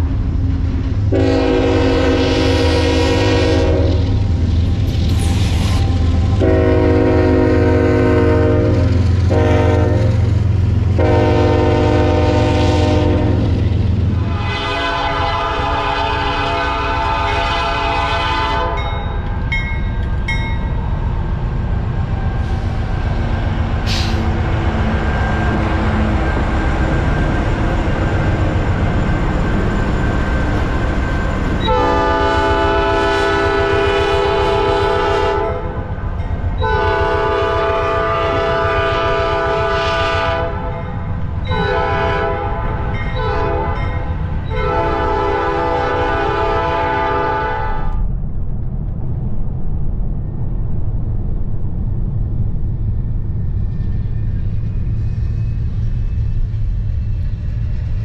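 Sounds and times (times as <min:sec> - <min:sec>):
locomotive engine and wheel rumble: 0:00.0 - 0:58.0
train air horn: 0:01.1 - 0:04.2, 0:06.2 - 0:13.6, 0:14.2 - 0:18.9, 0:31.6 - 0:35.9, 0:36.6 - 0:48.0.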